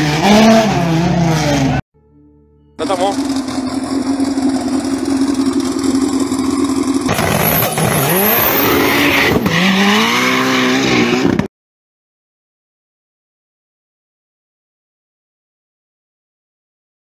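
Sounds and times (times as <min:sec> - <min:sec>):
car engine idling and revving: 0:00.0 - 0:01.8, 0:02.8 - 0:11.5.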